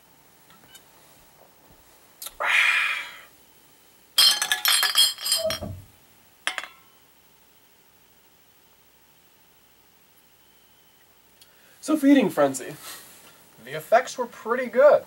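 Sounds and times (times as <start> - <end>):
glass bottles clinking: 4.2 - 5.8, 6.5 - 6.8.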